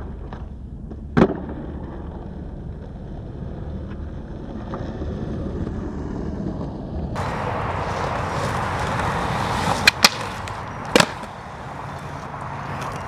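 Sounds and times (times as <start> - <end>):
skateboard wheels rolling on concrete: 0.0 - 13.0
skateboard clacking on concrete ledge: 7.8 - 11.4.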